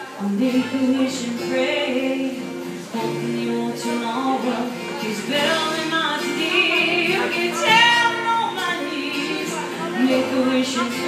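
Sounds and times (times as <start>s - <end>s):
acoustic guitars playing: 0.0s - 11.0s
woman singing: 0.0s - 11.0s.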